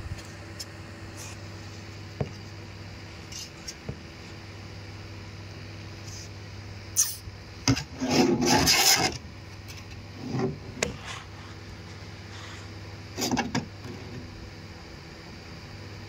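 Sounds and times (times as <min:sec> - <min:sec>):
steady low hum: 0:00.0 - 0:16.0
rubbing and scraping noises: 0:07.7 - 0:14.1.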